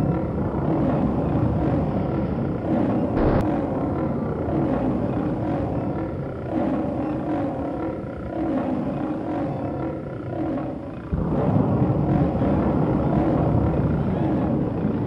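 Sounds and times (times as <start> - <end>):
deep rumble: 0.0 - 6.2.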